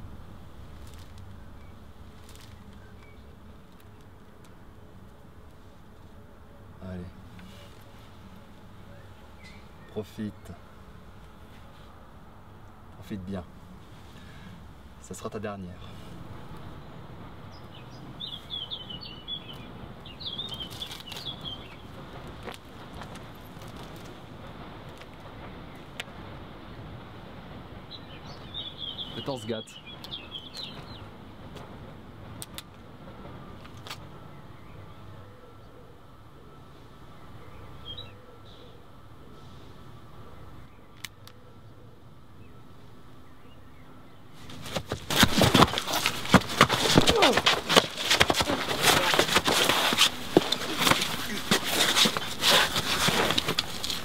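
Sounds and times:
clothing rustling: 0:44.4 - 0:54.0
scuffling impacts: 0:44.4 - 0:54.0.

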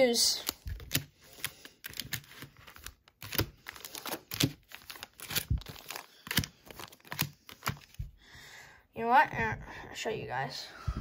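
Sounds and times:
foil card packs crinkling: 0:00.2 - 0:08.1.

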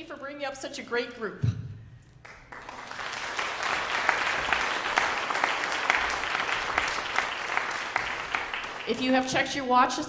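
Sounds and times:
congregation applauding: 0:02.2 - 0:09.7.

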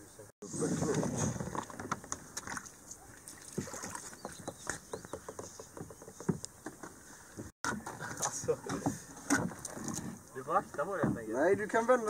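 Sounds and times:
water lapping around rocks: 0:00.7 - 0:05.0
small splashes: 0:00.8 - 0:04.8.

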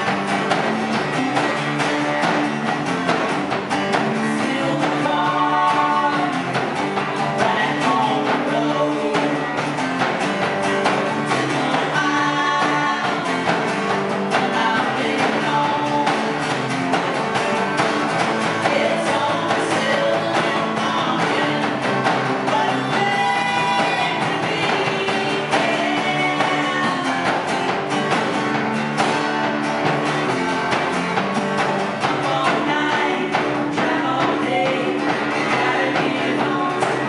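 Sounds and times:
electric guitar: 0:00.0 - 0:37.0
strummed acoustic guitar: 0:00.0 - 0:37.0
woman singing: 0:03.9 - 0:16.8, 0:18.4 - 0:27.9, 0:31.8 - 0:37.0.

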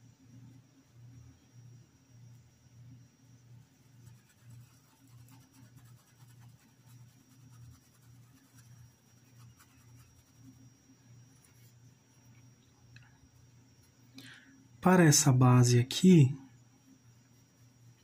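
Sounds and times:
paintbrush rubbing on cloth: 0:03.8 - 0:11.9.

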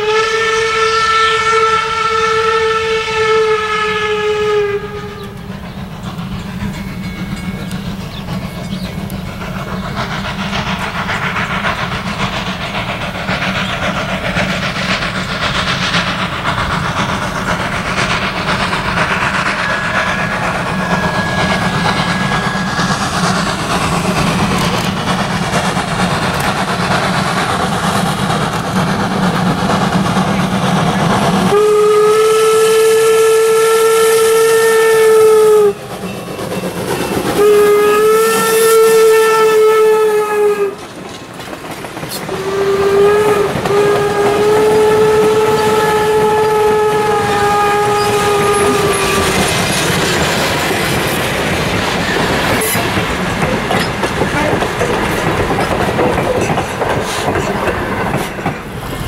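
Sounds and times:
steam whistle blast: 0:00.0 - 0:05.4, 0:19.6 - 0:23.2, 0:31.5 - 0:35.8, 0:37.3 - 0:40.8, 0:42.3 - 0:49.5
steam locomotive running: 0:00.0 - 0:59.0.

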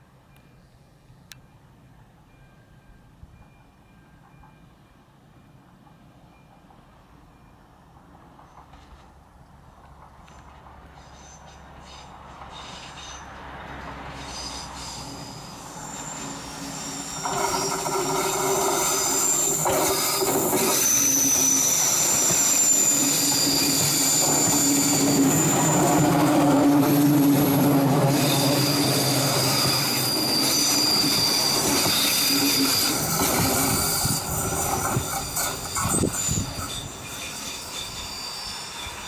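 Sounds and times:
train wheels squealing on rails: 0:00.0 - 0:39.0
wheels clacking on track: 0:07.9 - 0:39.0.

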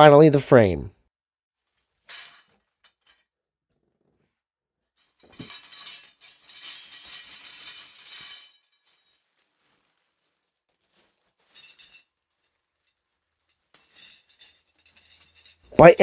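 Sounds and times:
metal rods clinking and rattling: 0:01.9 - 0:03.3, 0:05.0 - 0:10.1, 0:10.8 - 0:15.8.

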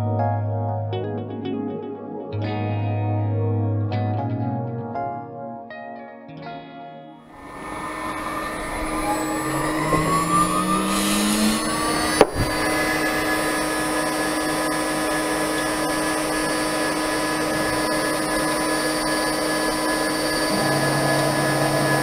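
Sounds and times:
router spindle high whine: 0:07.4 - 0:22.0.

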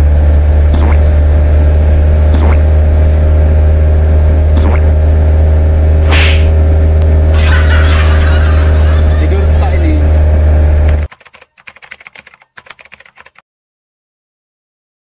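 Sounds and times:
truck engine droning: 0:00.0 - 0:11.1
brief swishes: 0:06.0 - 0:06.6.

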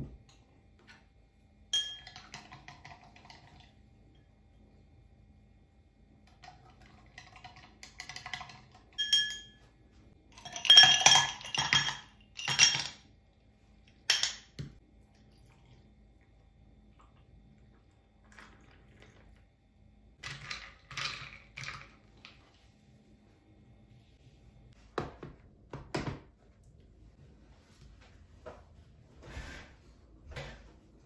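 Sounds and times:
straw and ice clinking glass: 0:01.8 - 0:02.6, 0:08.0 - 0:09.6, 0:10.3 - 0:13.0
ice cubes clattering into glass: 0:10.4 - 0:13.0.

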